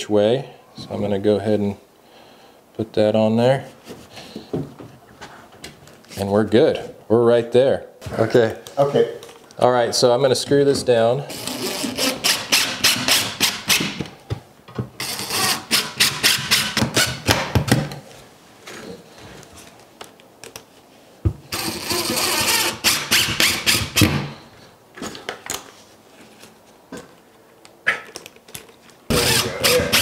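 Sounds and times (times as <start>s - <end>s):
cordless drill driving screws: 11.3s - 13.9s, 15.0s - 17.3s, 21.5s - 24.3s, 29.1s - 30.0s.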